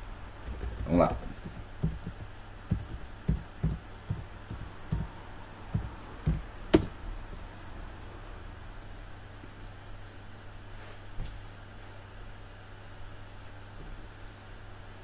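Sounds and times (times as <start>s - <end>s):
faint low hum: 0.0s - 10.6s
computer keyboard keystrokes: 0.4s - 5.1s, 5.8s - 6.9s.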